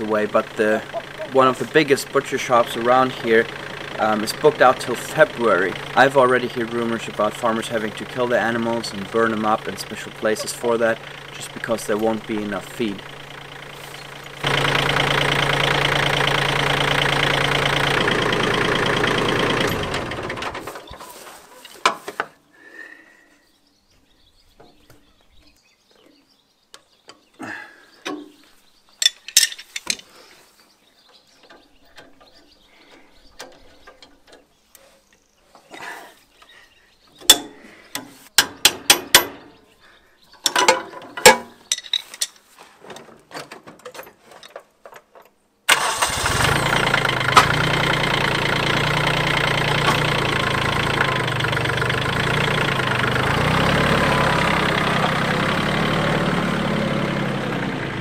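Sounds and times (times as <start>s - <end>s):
engine starting and running: 0.0s - 21.2s, 45.7s - 58.0s
sharp clicks and knocks: 37.2s - 39.5s, 40.4s - 45.4s.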